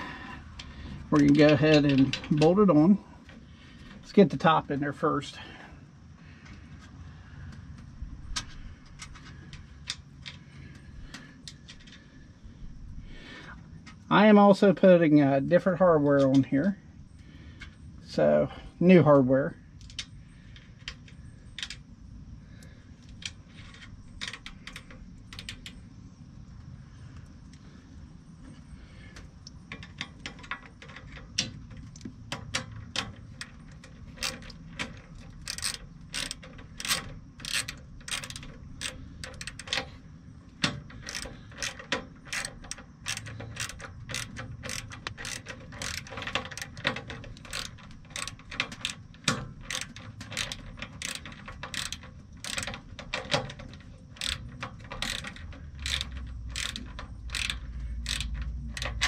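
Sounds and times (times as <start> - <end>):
socket ratchet clicking: 29.4 - 59.0.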